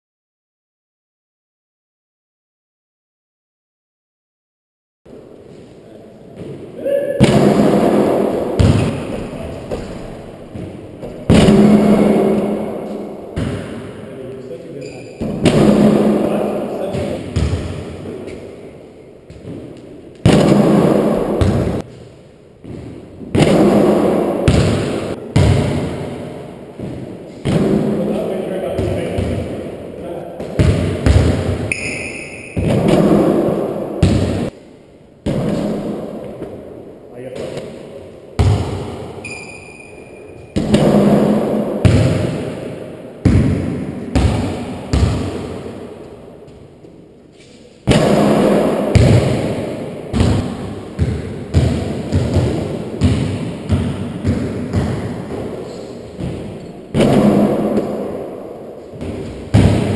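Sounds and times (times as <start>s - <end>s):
basketball thuds: 6.4s - 14.0s, 15.1s - 18.5s, 19.2s - 22.0s, 22.6s - 29.7s, 30.4s - 31.7s, 32.5s - 34.5s, 37.4s - 39.2s, 40.4s - 46.7s, 47.8s - 59.9s.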